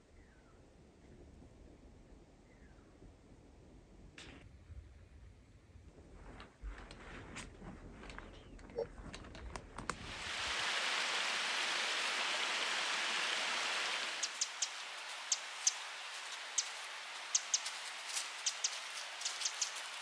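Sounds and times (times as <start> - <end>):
water trickling and dripping: 8.0 - 20.0
running water rushing: 9.8 - 20.0.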